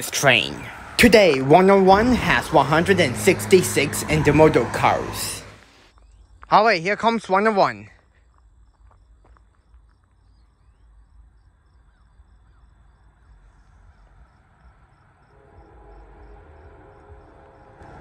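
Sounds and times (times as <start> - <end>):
freight train locomotive hum: 0.0 - 5.9, 13.3 - 18.0
crickets chirping: 0.0 - 18.0.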